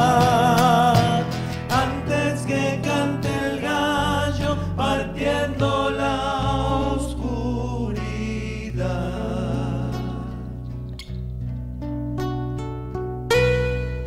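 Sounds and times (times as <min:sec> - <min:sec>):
voices singing together: 0:00.0 - 0:10.6
acoustic guitars and bass: 0:00.0 - 0:14.0.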